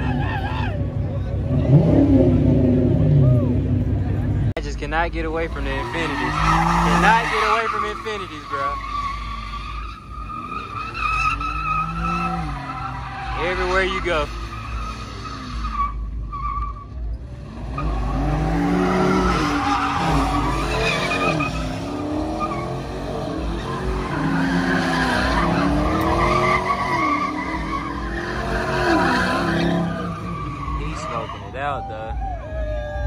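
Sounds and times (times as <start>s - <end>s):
tyres squealing on pavement: 0.0s - 1.8s, 5.2s - 32.6s
car engine revving: 0.0s - 31.6s.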